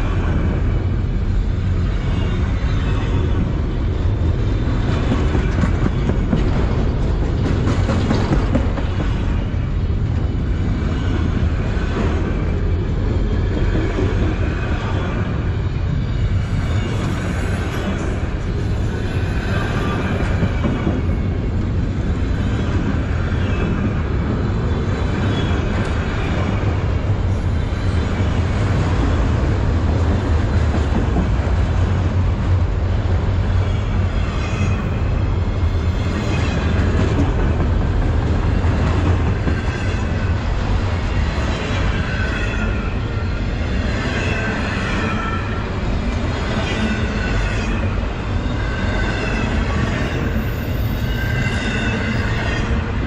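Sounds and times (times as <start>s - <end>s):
train wheels rumbling on rail: 0.0s - 53.0s
faint high wheel squeal: 48.4s - 52.8s.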